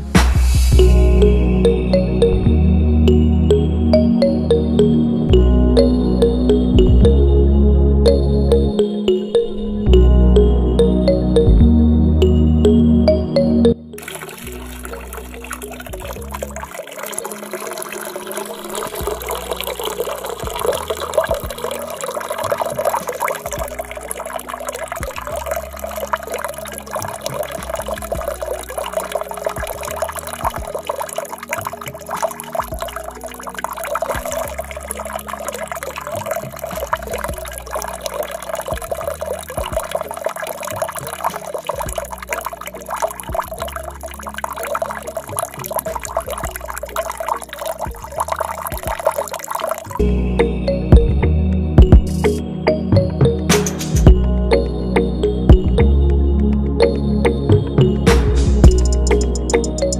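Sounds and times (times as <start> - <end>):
water running and splashing: 14.0 - 50.0.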